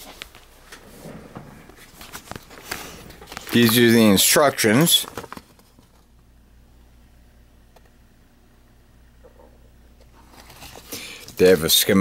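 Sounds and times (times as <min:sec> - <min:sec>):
steady low hum: 0:00.0 - 0:12.0
paper rustling: 0:01.7 - 0:06.1, 0:10.2 - 0:11.6.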